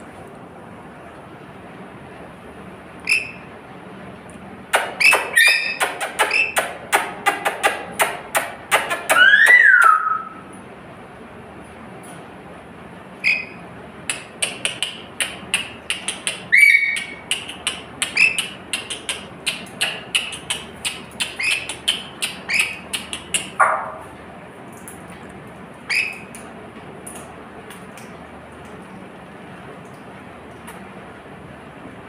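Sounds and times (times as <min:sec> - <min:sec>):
lorikeet screeching calls: 0:05.0 - 0:06.6, 0:09.1 - 0:10.3, 0:16.5 - 0:17.1.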